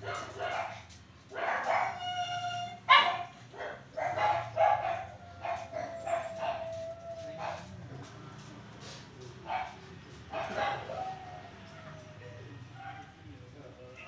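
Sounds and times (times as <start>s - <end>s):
small dogs barking: 0.0s - 7.9s, 9.4s - 13.2s
dog whining: 4.9s - 7.6s.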